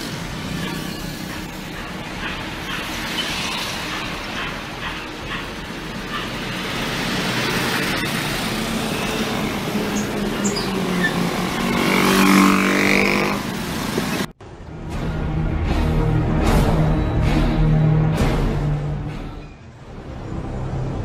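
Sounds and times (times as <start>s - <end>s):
road traffic: 0.0s - 21.0s
rushing road noise: 0.0s - 21.0s
motorcycle engine: 5.7s - 13.7s.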